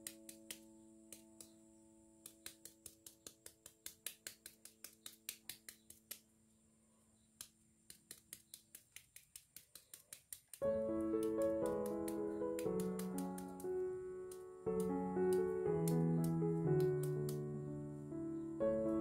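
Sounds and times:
background music chord: 0:10.6 - 0:19.0
knife paring mango skin: 0:11.2 - 0:13.7.

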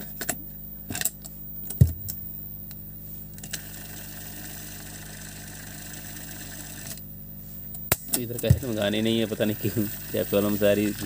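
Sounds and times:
constant low hum: 0:00.0 - 0:11.0
tape hiss: 0:00.0 - 0:11.0
cassette deck clunk: 0:07.9 - 0:08.7.

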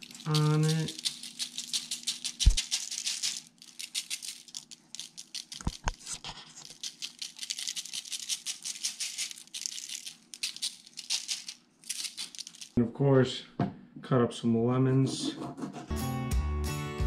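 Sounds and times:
shaker jar rattling: 0:00.0 - 0:12.8.

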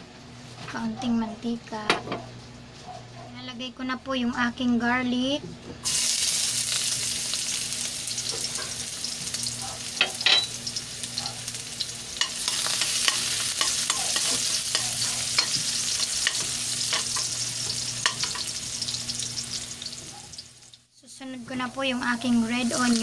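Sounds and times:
garlic sizzling in hot oil: 0:05.8 - 0:23.0
spatula scraping a pan: 0:12.2 - 0:18.6.

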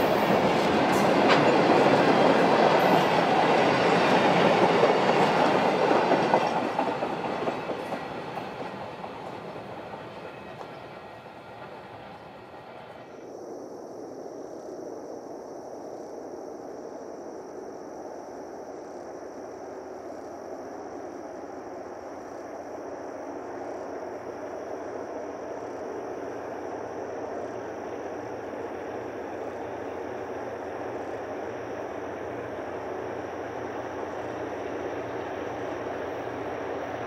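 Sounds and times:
diesel locomotives rumbling: 0:00.0 - 0:13.2.

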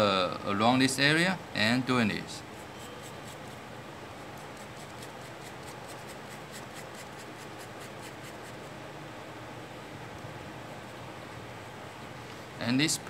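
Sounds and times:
pen nib scratching on paper: 0:02.6 - 0:03.6, 0:04.4 - 0:08.7.

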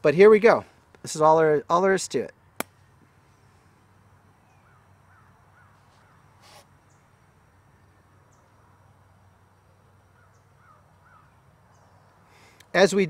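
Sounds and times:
faint short bird calls: 0:04.4 - 0:07.1, 0:10.1 - 0:12.6
soft hiss: 0:05.6 - 0:13.0.

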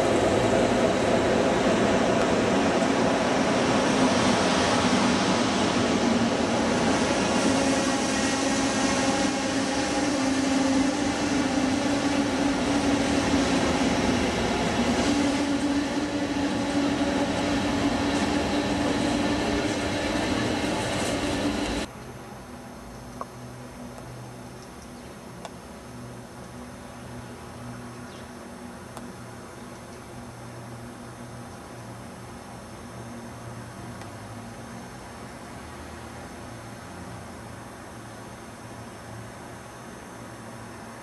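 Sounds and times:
train rail rumble: 0:00.0 - 0:21.9.

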